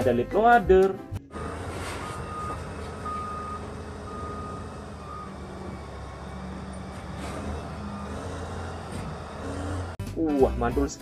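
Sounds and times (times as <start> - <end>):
heavy diesel machinery running: 1.3 - 10.0
reversing alarm beeping: 1.4 - 10.0.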